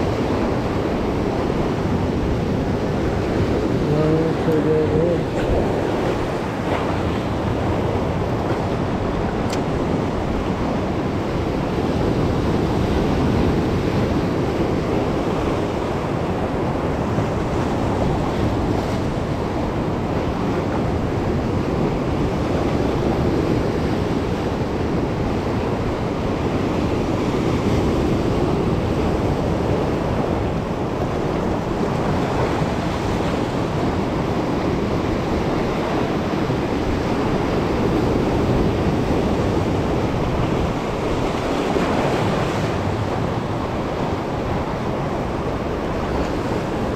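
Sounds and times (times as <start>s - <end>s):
waves breaking over rocks: 0.0s - 46.9s.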